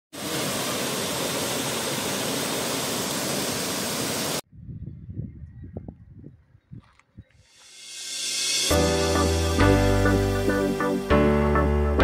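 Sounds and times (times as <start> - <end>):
waterfall rushing: 0.2 - 4.4.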